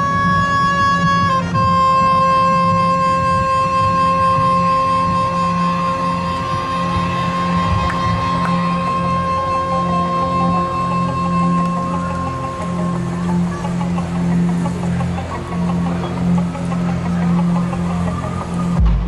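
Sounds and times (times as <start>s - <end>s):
long high held note: 0.0s - 19.0s
marching band playing: 0.0s - 19.0s
pulsing low part: 0.0s - 19.0s.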